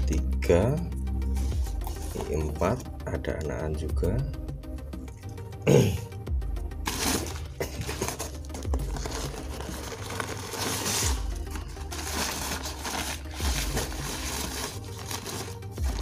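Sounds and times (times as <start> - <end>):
newspaper rustling and crinkling: 6.8 - 16.0.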